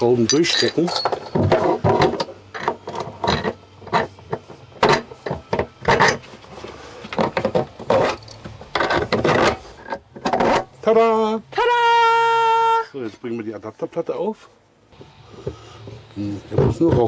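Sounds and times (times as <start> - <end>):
screws and metal plate handled: 0.0 - 6.3, 7.0 - 10.8.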